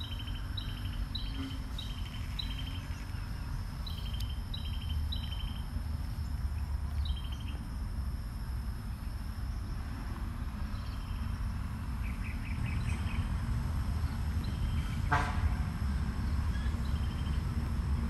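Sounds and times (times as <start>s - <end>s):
bird chirps: 0.0s - 7.6s, 12.0s - 13.3s
high insect buzz: 0.0s - 18.0s.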